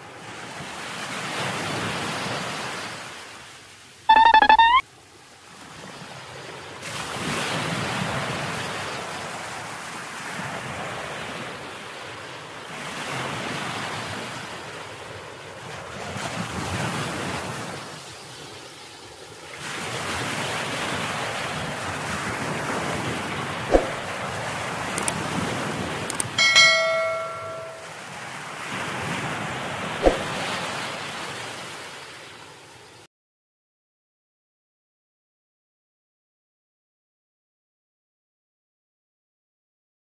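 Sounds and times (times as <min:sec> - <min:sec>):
rising electronic tone: 0:04.1 - 0:04.8.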